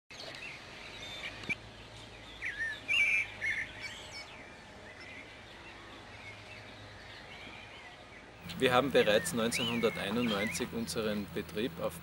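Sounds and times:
small birds chirping: 0.1 - 12.0.

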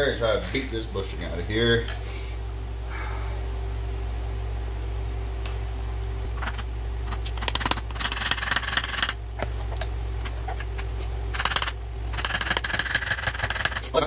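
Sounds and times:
screwdriver knocking and scraping: 6.4 - 14.0.

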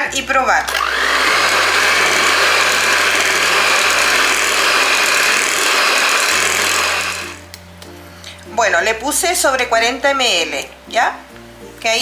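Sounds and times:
electric hand mixer whisking: 0.7 - 7.5.

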